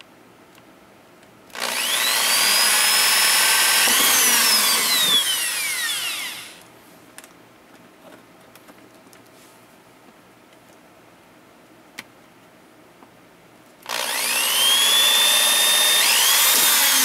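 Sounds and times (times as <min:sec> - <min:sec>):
electric drill boring through plastic: 0:01.5 - 0:06.6, 0:13.9 - 0:17.0.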